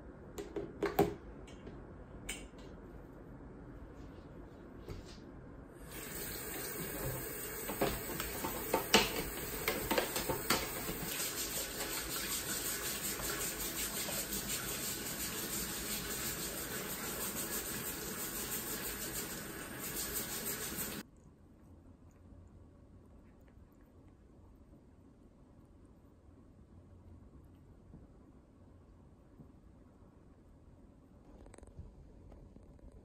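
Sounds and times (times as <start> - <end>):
tap water running into sink: 5.9 - 21.0.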